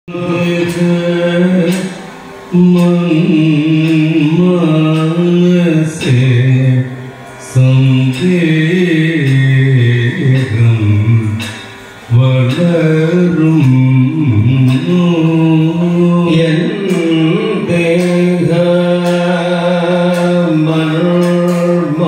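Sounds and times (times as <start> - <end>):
men singing long held notes: 0.1 - 22.0.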